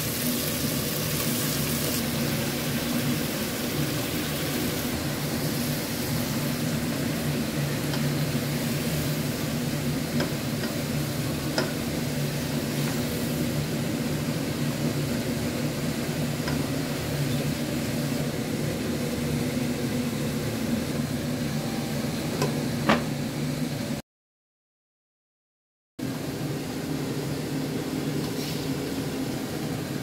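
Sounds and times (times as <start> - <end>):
chicken cooking in a pan: 0.0 - 21.1.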